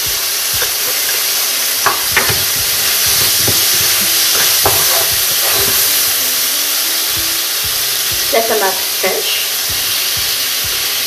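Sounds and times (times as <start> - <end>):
vegetables sizzling in oil: 0.0 - 11.0
spatula scraping a pan: 0.6 - 6.2.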